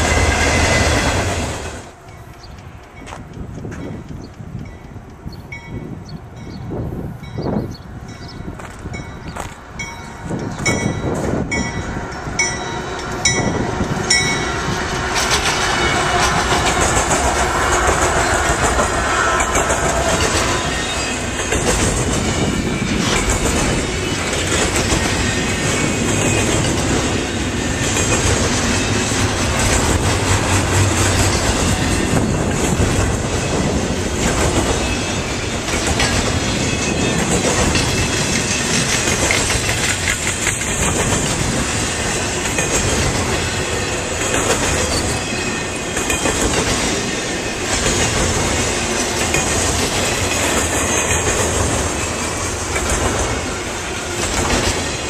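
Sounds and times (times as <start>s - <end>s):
freight train wheels rumbling: 0.0s - 55.0s
crossing bell dinging: 1.9s - 14.7s, 34.7s - 40.0s, 42.0s - 55.0s.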